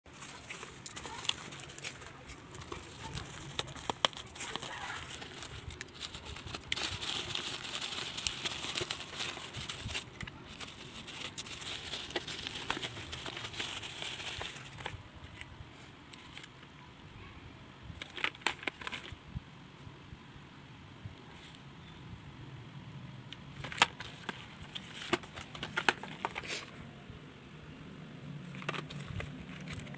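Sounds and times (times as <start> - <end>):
plastic bag crinkling: 0.1 - 15.0, 23.6 - 26.6.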